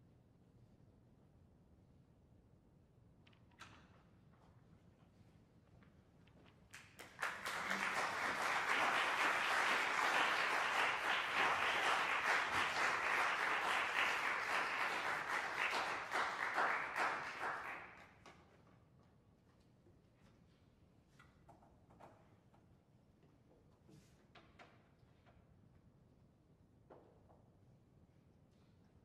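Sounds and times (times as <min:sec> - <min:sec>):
audience applauding: 0:06.8 - 0:18.0.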